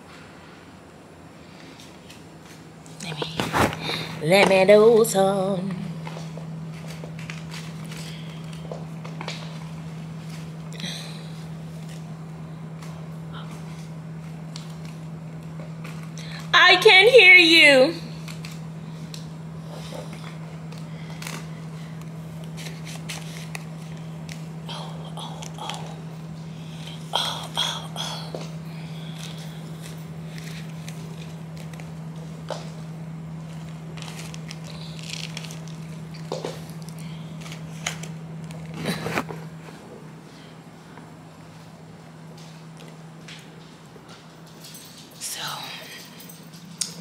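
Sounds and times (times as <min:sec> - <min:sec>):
steady low hum: 0:00.0 - 0:47.0
paper banknotes rustling: 0:06.7 - 0:09.6, 0:18.2 - 0:24.6, 0:33.4 - 0:39.3.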